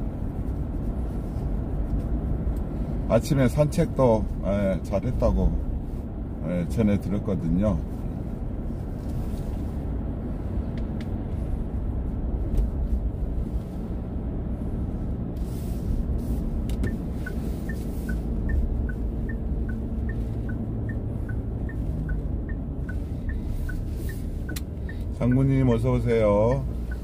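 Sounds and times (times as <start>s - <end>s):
car cabin road and engine rumble: 0.0s - 27.0s
turn signal ticking: 8.4s - 13.4s, 15.4s - 27.0s.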